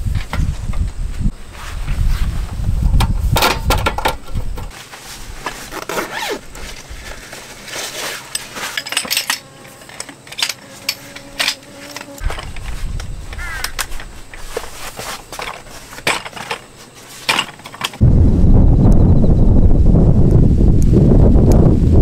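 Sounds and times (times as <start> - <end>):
hard objects clinking: 8.2 - 12.6.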